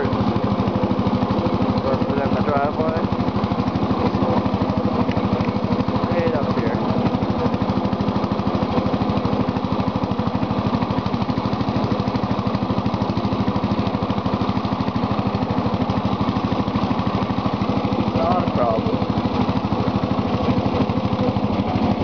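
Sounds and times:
lawn tractor engine running: 0:00.0 - 0:22.0.

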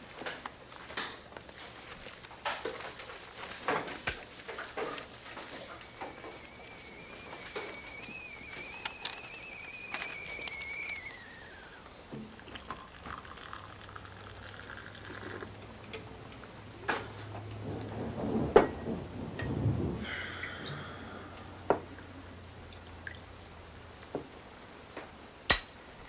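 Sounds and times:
faint steady hum: 0:00.0 - 0:26.0
mug and spoon clinking: 0:13.0 - 0:15.4.

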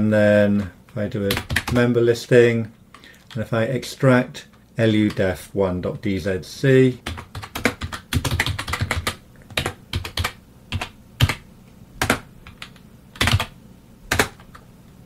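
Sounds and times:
computer keyboard typing: 0:01.3 - 0:01.9, 0:07.0 - 0:11.4, 0:12.0 - 0:14.6.

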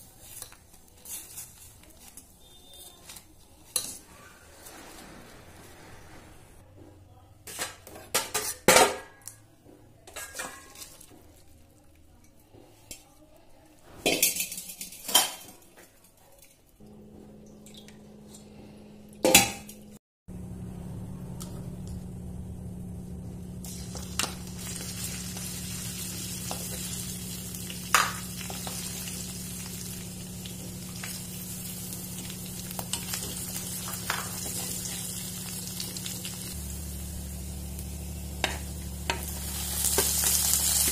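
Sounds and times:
oil sizzling in a wok: 0:22.2 - 0:40.9.

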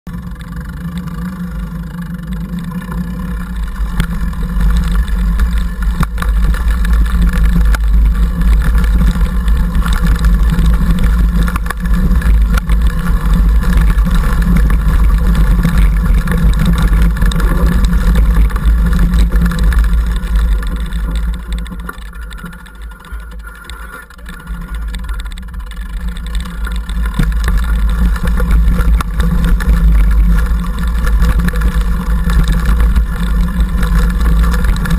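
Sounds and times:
mountain bike rumbling and rattling: 0:00.0 - 0:34.9.

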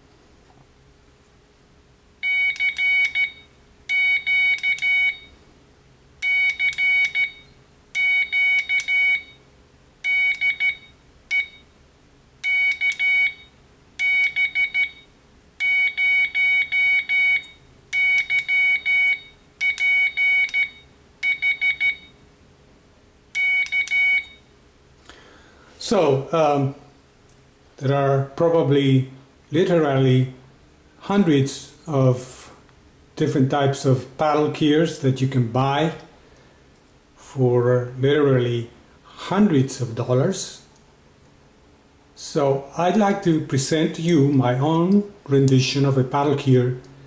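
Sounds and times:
morse code beeps: 0:02.2 - 0:05.4, 0:06.2 - 0:09.4, 0:10.0 - 0:11.7, 0:12.4 - 0:22.2, 0:23.4 - 0:24.4.

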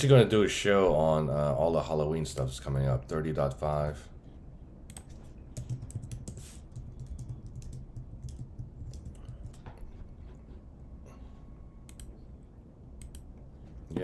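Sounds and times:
typing on computer keyboard: 0:04.9 - 0:09.7.

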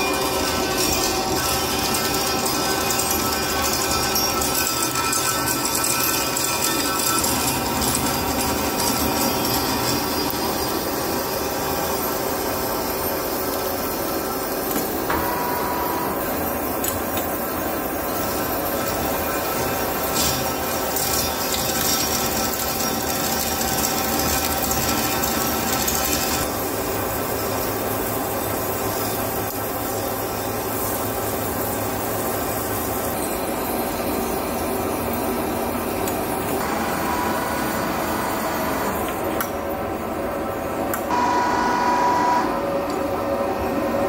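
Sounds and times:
lathe cutting metal: 0:00.0 - 0:39.2.

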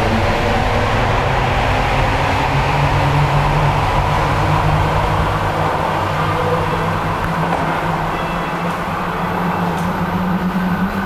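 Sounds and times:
escalator mechanical hum: 0:00.0 - 0:11.0.

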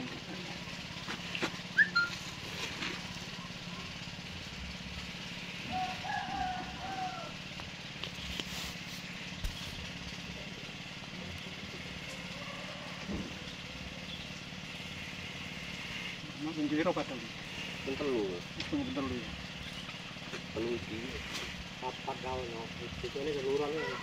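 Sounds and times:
idling engine hum: 0:00.0 - 0:24.0
short high chirps: 0:01.7 - 0:02.3.

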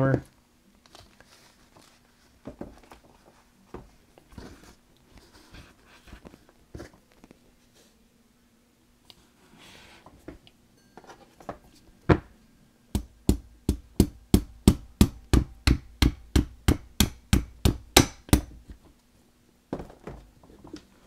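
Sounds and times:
hammer tapping a punch: 0:13.0 - 0:18.6.

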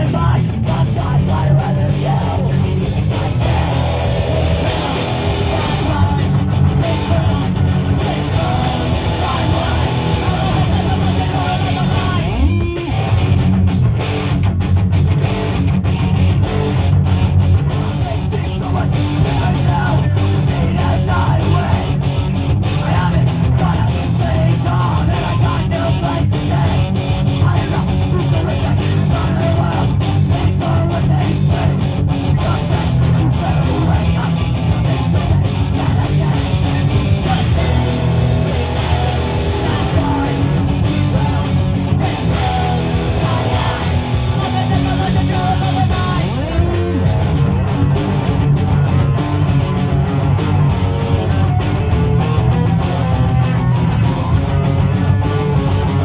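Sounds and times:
bass guitar: 0:00.0 - 0:56.0
distorted electric guitars: 0:00.0 - 0:56.0
drum kit: 0:00.0 - 0:56.0.

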